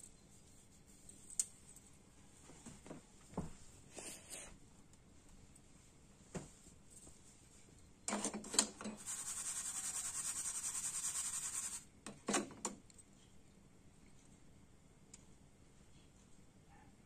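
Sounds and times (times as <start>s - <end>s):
sugar grains rasping in shaken pan: 9.0s - 11.8s.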